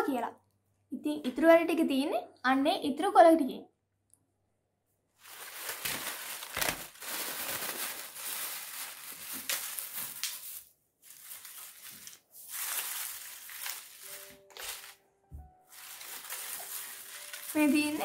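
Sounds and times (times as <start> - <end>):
paper and plastic bag rustling: 5.2 - 18.0.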